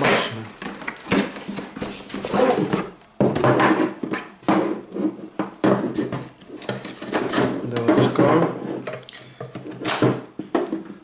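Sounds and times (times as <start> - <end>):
cardboard rustling and tearing: 0.0 - 3.0.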